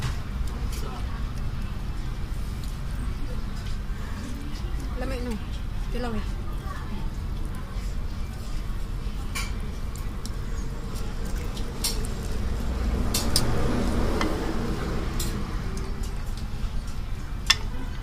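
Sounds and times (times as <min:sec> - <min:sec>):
low background hum: 0:00.0 - 0:18.0
chopsticks and spoon clinking bowl: 0:15.2 - 0:18.0.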